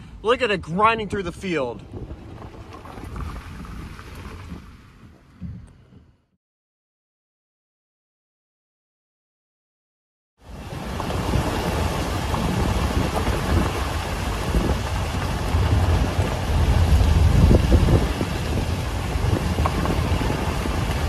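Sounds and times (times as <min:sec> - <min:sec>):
wind buffeting microphone: 0:00.0 - 0:06.4, 0:10.4 - 0:21.0
rain: 0:01.9 - 0:05.0, 0:10.4 - 0:21.0
deep thunder rumble: 0:10.5 - 0:21.0.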